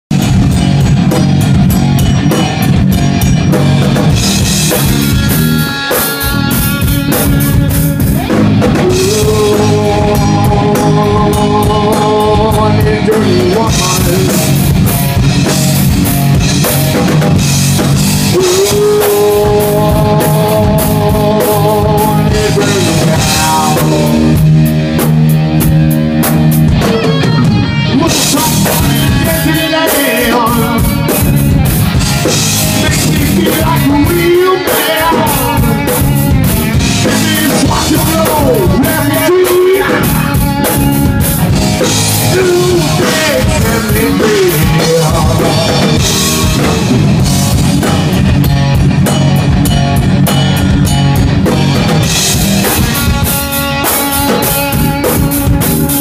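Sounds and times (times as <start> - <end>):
drum kit: 0.0 - 56.0
electric guitar: 0.0 - 56.0
man singing: 8.6 - 14.7, 18.2 - 24.5, 26.8 - 31.4, 32.7 - 41.2, 42.2 - 47.2.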